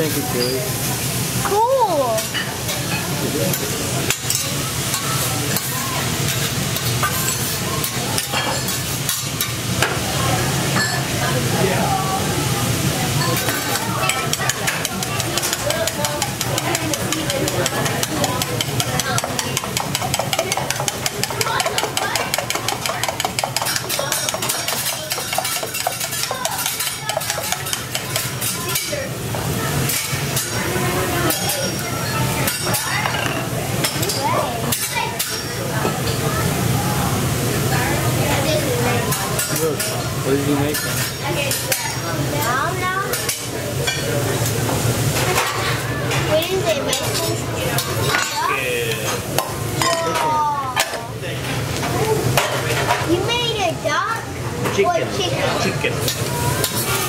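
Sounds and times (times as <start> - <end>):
food sizzling on a griddle: 0.0 - 57.0
metal utensils clattering on metal: 13.2 - 29.0.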